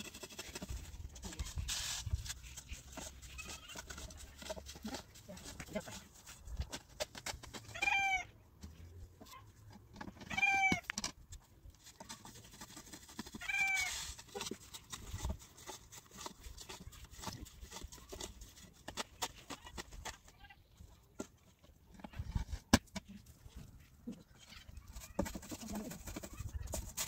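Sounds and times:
small animal crying: 7.7 - 8.3.

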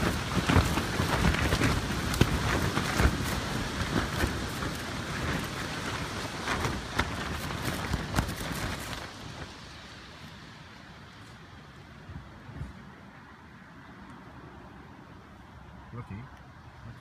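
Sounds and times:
rain slapping on tent fabric: 0.0 - 12.7
storm rushing on tent: 0.0 - 13.2.

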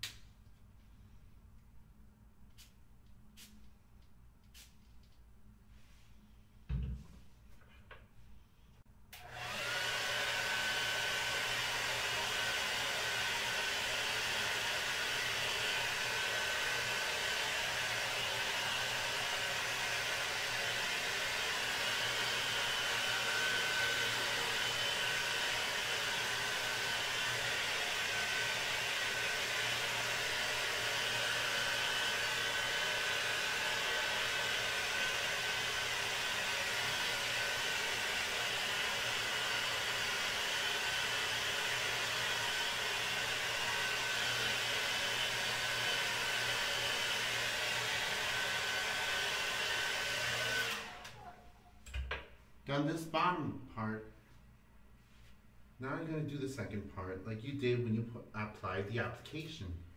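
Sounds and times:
hair dryer blowing: 9.2 - 52.1.

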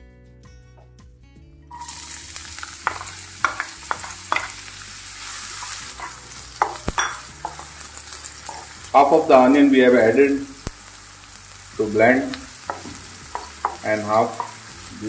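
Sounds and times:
onion sizzling in oil: 1.7 - 15.0
spatula knocking against pan: 2.8 - 4.6, 12.6 - 14.7.

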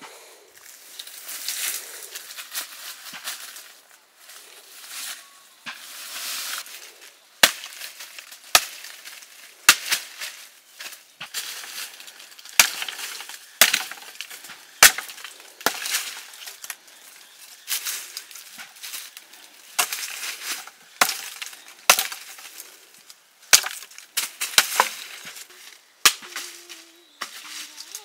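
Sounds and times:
blade chopping wood: 7.4 - 7.9, 12.5 - 16.3, 21.0 - 22.5, 23.5 - 25.0.

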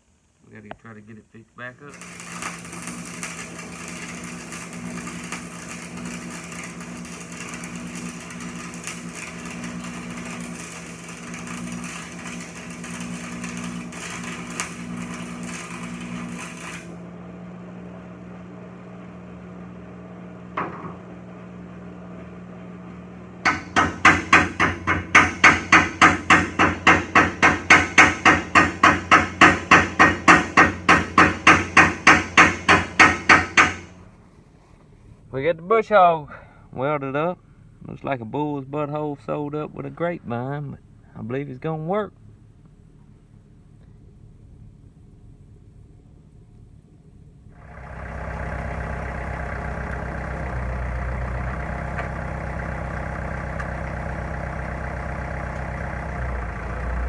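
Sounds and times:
steady hum: 0.0 - 57.0
welding arc crackling: 1.8 - 17.0, 23.5 - 33.9, 47.6 - 57.0
hammer striking steel: 23.5 - 33.9.

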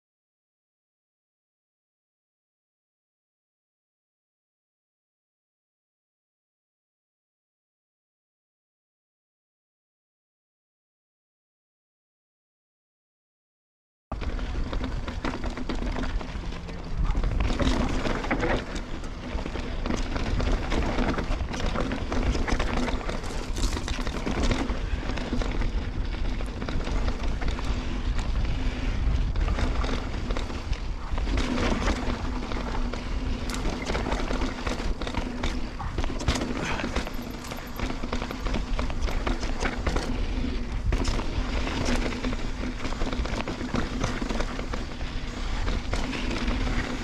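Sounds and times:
bike knocks and rattles: 14.2 - 47.0
wind buffeting microphone: 14.2 - 47.0.

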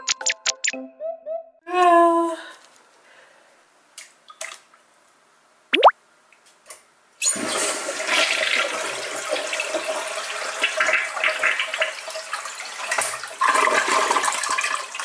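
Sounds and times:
toilet flushing: 7.2 - 15.0.

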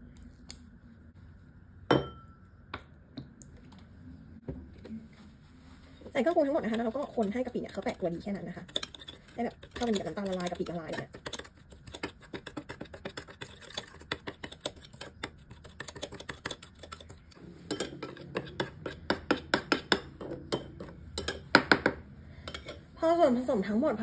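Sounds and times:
spoon clinking against glass: 1.9 - 2.4
spoon stirring and scraping sauce: 5.6 - 21.5, 22.5 - 22.8.

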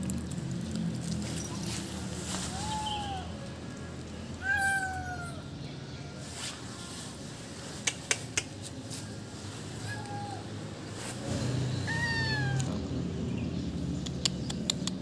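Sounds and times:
kitten meowing: 4.4 - 5.5, 9.8 - 10.5, 11.8 - 12.8
sharp clicks: 7.9 - 8.7, 14.0 - 15.0.

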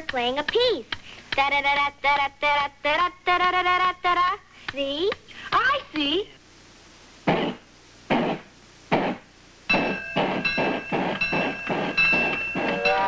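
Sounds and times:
steady high tones: 9.7 - 13.0
steam locomotive chuffing: 9.7 - 13.0.

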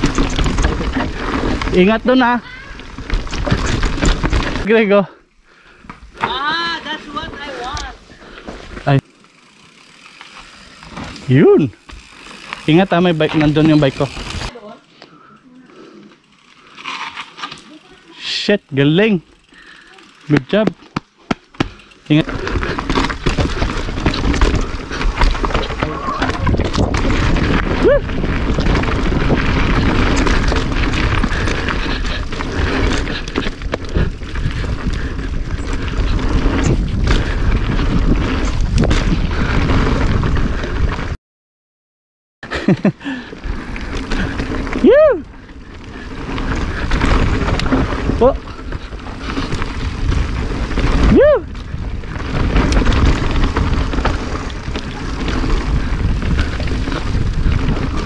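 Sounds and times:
bike clattering over bumps: 0.0 - 4.7, 8.6 - 14.5, 19.4 - 39.2, 45.4 - 58.0
wind rumbling on microphone: 0.0 - 4.7, 22.3 - 41.2, 43.4 - 58.0
tyres rolling on dirt: 0.0 - 4.9, 6.1 - 14.6, 16.2 - 41.1, 42.5 - 58.0.

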